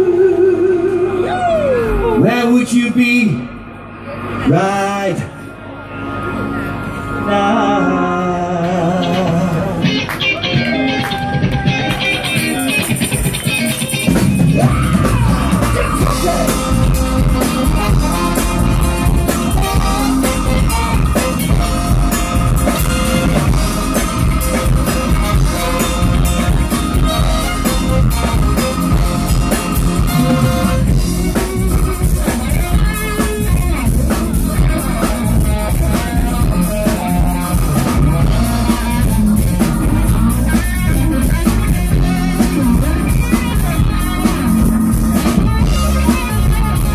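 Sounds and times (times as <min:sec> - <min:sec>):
live rock band playing: 0:00.0 - 0:46.9.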